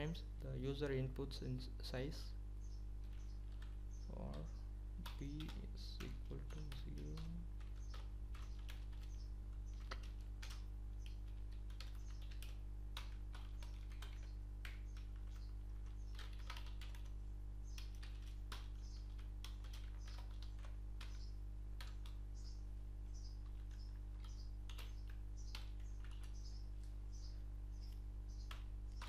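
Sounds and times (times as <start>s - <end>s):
low electrical hum: 0.0s - 29.0s
computer keyboard typing: 3.0s - 22.2s, 23.4s - 26.9s.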